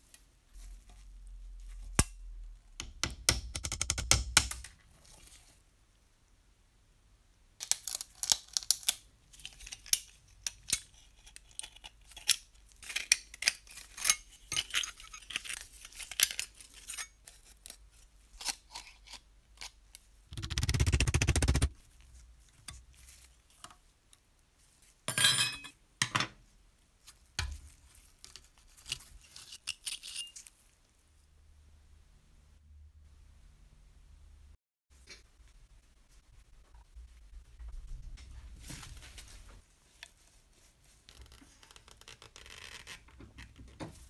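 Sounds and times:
metal toy parts clinking: 28.3s - 30.5s.

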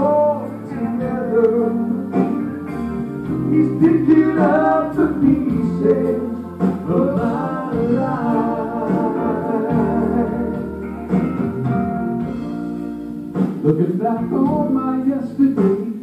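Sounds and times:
instrumental accompaniment: 0.0s - 16.0s
men singing gospel song: 3.5s - 11.0s.

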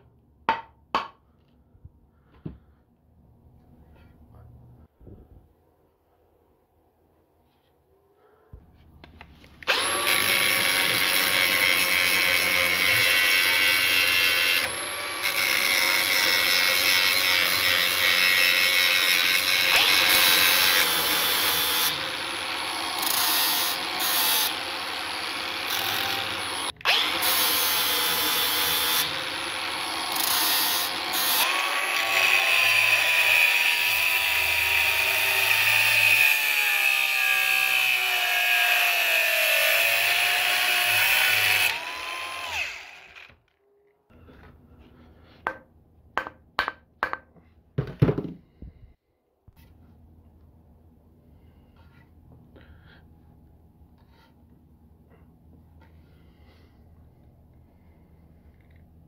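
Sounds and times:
angle grinder grinding metal: 9.6s - 43.5s.

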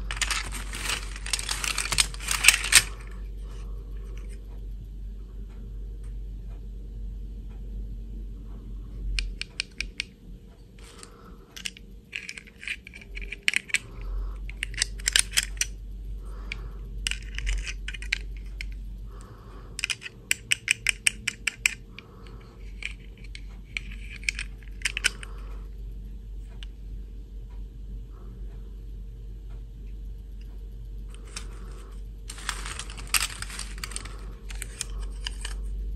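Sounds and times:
light plastic clicks and rattles: 0.0s - 4.6s, 9.0s - 25.8s, 29.5s - 35.9s.

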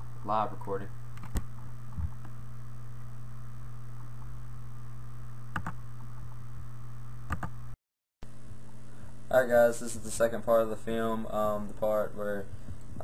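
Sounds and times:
low electrical hum: 0.0s - 13.0s
mouse clicks: 5.5s - 5.8s.

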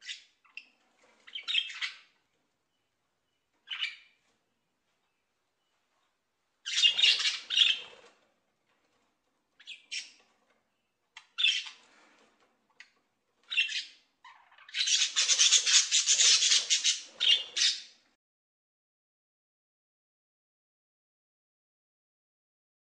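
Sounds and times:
parrots screeching: 6.7s - 7.9s, 13.5s - 17.9s.

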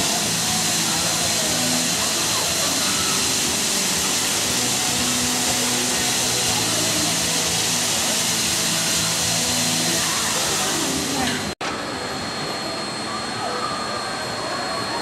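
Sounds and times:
steam locomotive hissing steam: 0.0s - 11.6s.

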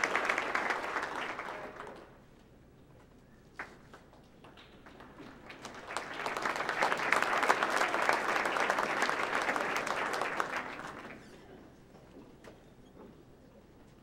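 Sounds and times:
audience applauding: 0.0s - 2.2s, 4.4s - 11.4s.

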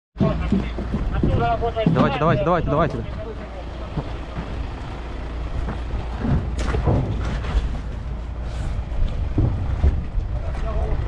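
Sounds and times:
knocks: 0.2s - 4.6s
faint voices: 0.2s - 5.3s
vehicles idling rumble: 0.2s - 11.0s.

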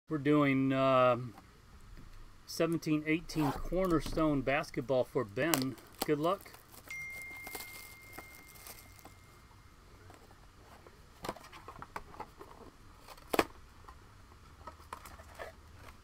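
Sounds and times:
cardboard and wrapper crinkling: 5.4s - 9.2s, 14.6s - 16.0s.

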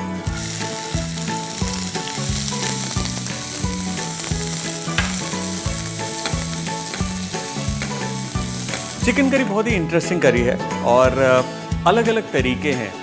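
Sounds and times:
onion sizzling in oil: 0.2s - 9.7s.

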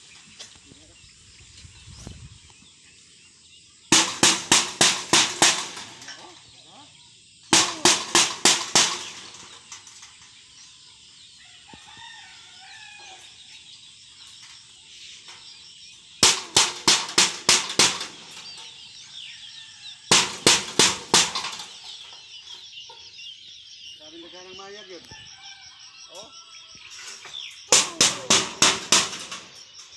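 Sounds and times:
small birds chirping: 0.0s - 4.0s, 6.0s - 7.8s, 8.8s - 29.9s
stick banging on metal roofing: 3.9s - 6.4s, 7.5s - 10.2s, 16.2s - 18.9s, 20.1s - 22.2s, 27.7s - 29.9s.

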